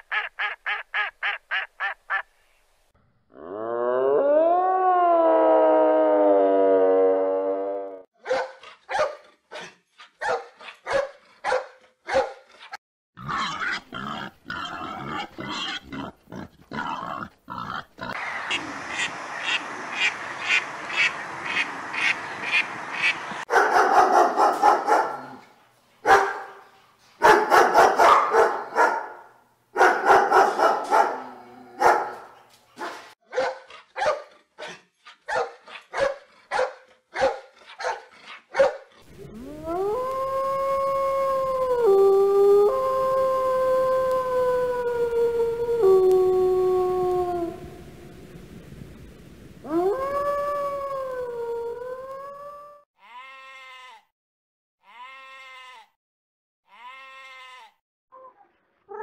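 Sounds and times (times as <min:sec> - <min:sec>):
dog barking: 0:08.2 - 0:12.5, 0:23.5 - 0:25.4, 0:26.0 - 0:26.6, 0:27.2 - 0:38.9.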